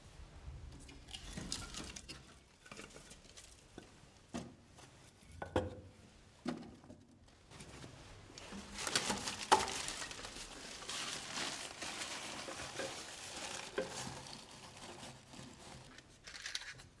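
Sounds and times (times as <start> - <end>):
rustling and handling noises: 0.6 - 5.4, 6.0 - 17.0.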